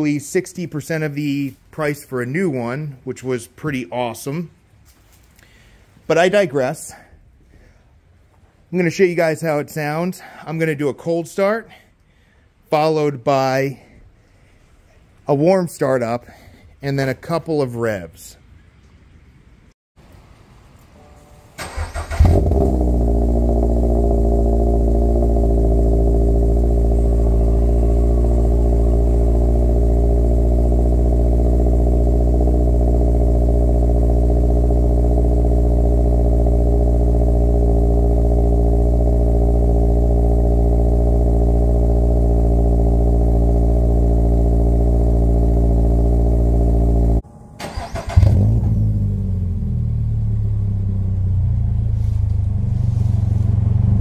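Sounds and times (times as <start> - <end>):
engine starter cranking: 21.6 - 23.1, 47.6 - 48.7
car engine revving and idling: 21.6 - 54.0.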